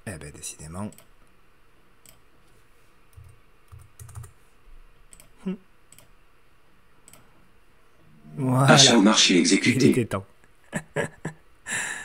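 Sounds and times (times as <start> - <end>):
keyboard typing: 3.1 - 4.4.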